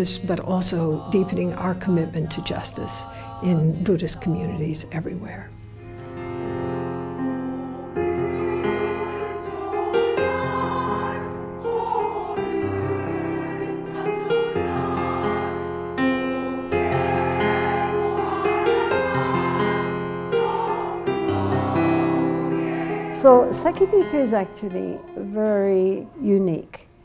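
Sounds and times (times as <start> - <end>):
women's choir singing: 0.0 - 5.5, 6.8 - 26.9
low instrumental accompaniment: 0.0 - 27.0.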